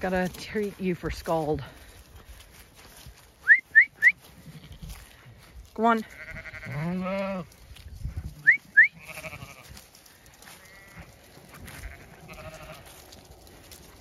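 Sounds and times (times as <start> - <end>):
sheep bleating: 6.0 - 7.6, 8.4 - 9.8, 10.4 - 13.1.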